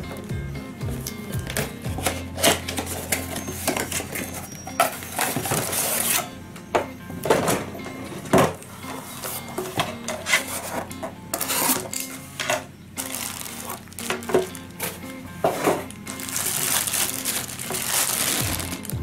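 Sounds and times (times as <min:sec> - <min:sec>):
soft background music: 0:00.0 - 0:19.0
bubble wrap crinkling: 0:13.0 - 0:19.0.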